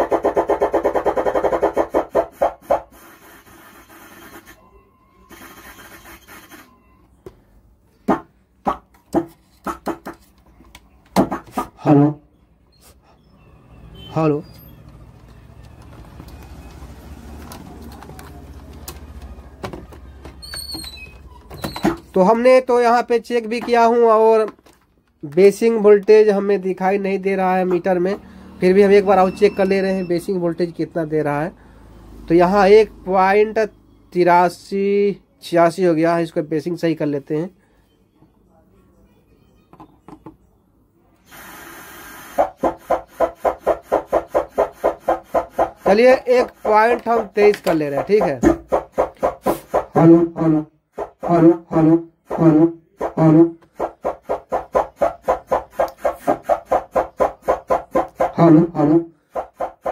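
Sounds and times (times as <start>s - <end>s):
rapid rasping pulse: 48.2s - 58.5s, 59.3s - 59.9s.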